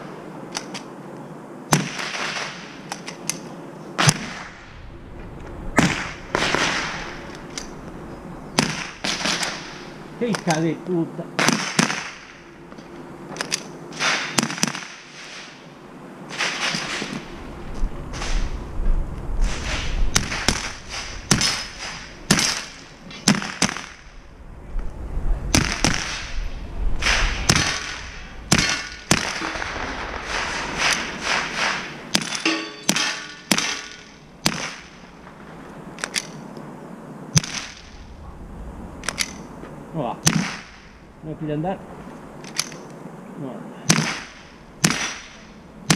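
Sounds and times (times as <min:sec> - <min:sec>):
rifle shots: 0:01.7 - 0:02.8, 0:05.8 - 0:07.2, 0:11.4 - 0:12.3, 0:27.0 - 0:35.0, 0:43.9 - 0:45.9.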